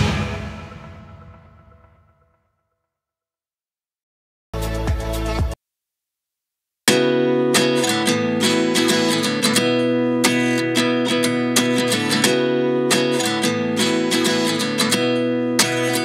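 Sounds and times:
strummed acoustic guitar: 6.9s - 16.0s.

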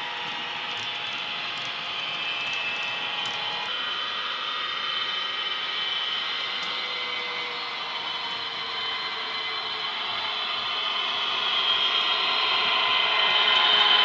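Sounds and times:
model wagon wheels clicking on track: 0.0s - 3.7s
model locomotive motor drone: 0.0s - 14.0s.

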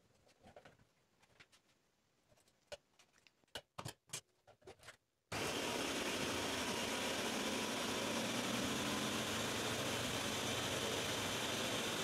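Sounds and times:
blender running: 5.3s - 12.0s.

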